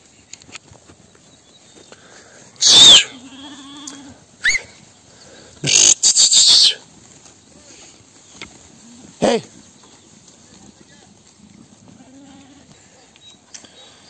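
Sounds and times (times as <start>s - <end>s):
faint bleat-like call: 2.6s - 4.6s, 12.0s - 12.7s
loud animal calls: 5.6s - 6.8s.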